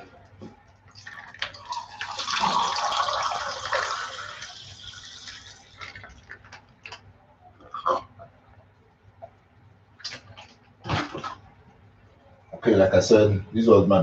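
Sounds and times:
water pouring into plastic cup: 0:00.9 - 0:07.0.

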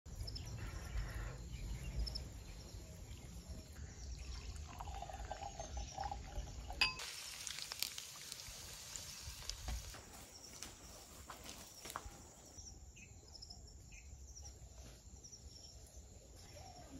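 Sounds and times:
wine pouring into a glass: 0:04.2 - 0:07.9
glass clink: 0:04.8 - 0:07.1
fish sizzling in hot oil: 0:06.8 - 0:10.0.

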